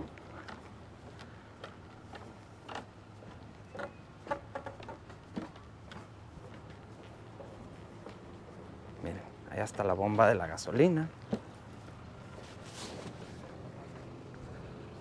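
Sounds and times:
light clicks and knocks: 0:00.0 - 0:08.2
steady low hum: 0:00.0 - 0:15.0.

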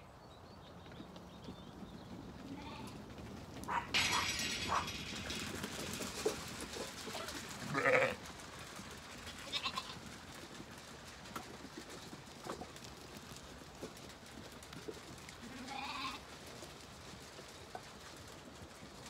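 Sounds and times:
sheep bleating: 0:07.6 - 0:08.2.

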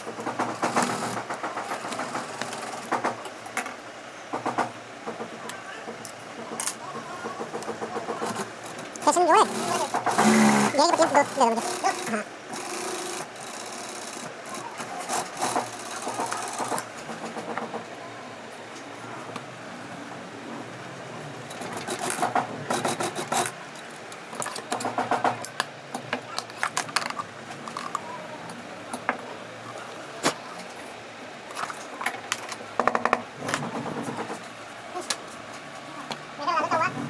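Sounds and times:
sewing machine rapid ticking: 0:09.4 - 0:16.8.

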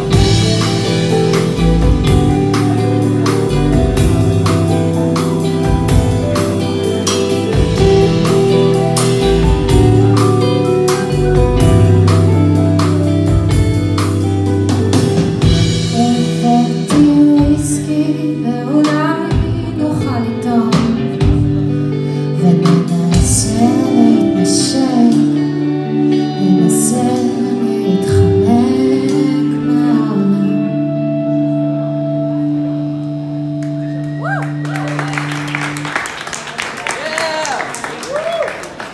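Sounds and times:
drums: 0:00.0 - 0:30.2
keyboard: 0:00.0 - 0:36.5
bass: 0:00.0 - 0:38.9
electric guitar: 0:00.0 - 0:38.9
woman singing: 0:15.4 - 0:31.6.

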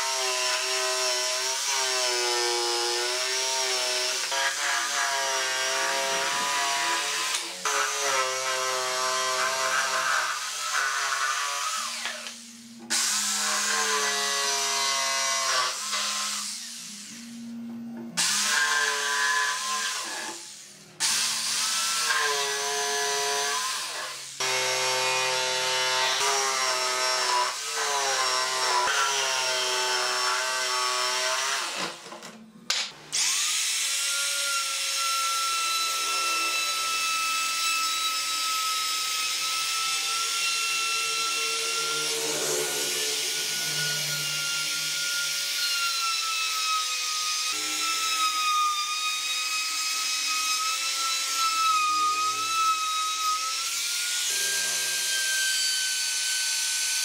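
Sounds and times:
jigsaw cutting wood: 0:00.0 - 0:17.2, 0:18.2 - 0:57.0
router high whine: 0:05.6 - 0:46.5.

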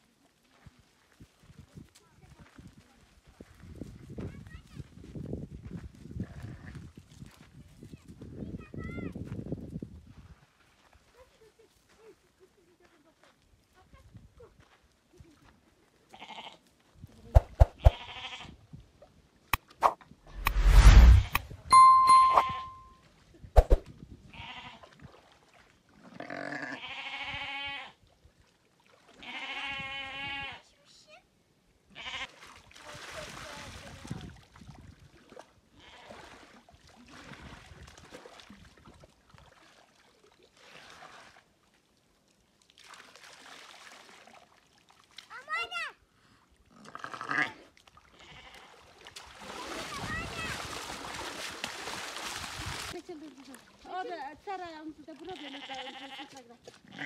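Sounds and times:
sheep or goat bleating: 0:16.1 - 0:16.6, 0:17.8 - 0:18.6, 0:26.2 - 0:27.9, 0:29.2 - 0:30.6, 0:32.0 - 0:32.3, 0:47.0 - 0:47.6, 0:48.2 - 0:48.8, 0:55.2 - 0:57.0
loud whooshing rush: 0:17.4 - 0:17.9, 0:19.8 - 0:21.5
ringing bell ding: 0:21.7 - 0:23.0
water splashing and sloshing: 0:24.8 - 0:26.0, 0:28.1 - 0:29.2, 0:32.3 - 0:45.6, 0:47.6 - 0:56.9.

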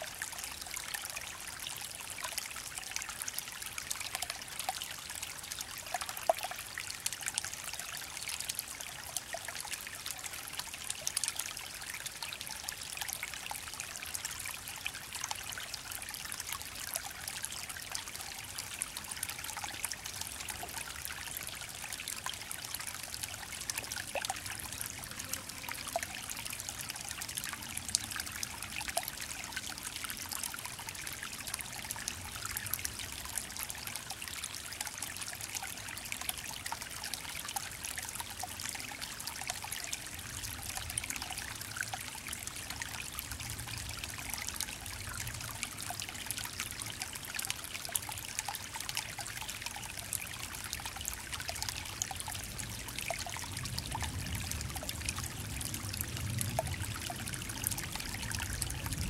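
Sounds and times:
creek trickling over stones: 0:00.0 - 0:59.0
water plinks and drips: 0:16.7 - 0:59.0.

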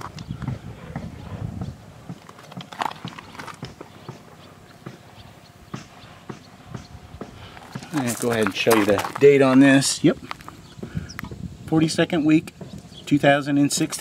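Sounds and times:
footsteps crunching on gravel: 0:02.1 - 0:05.1, 0:05.8 - 0:11.4.

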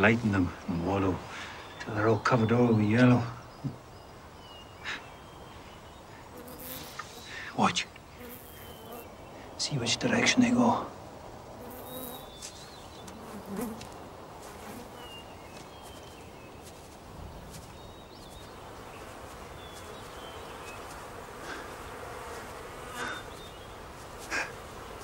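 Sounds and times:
bees buzzing: 0:06.2 - 0:09.2, 0:11.4 - 0:25.0
bird chirps: 0:08.2 - 0:10.5, 0:14.9 - 0:21.0.

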